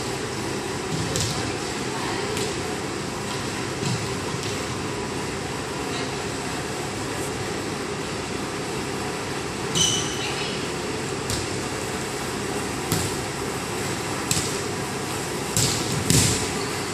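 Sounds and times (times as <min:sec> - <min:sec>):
volleyball hits echoing: 0:14.2 - 0:14.6, 0:15.5 - 0:16.5.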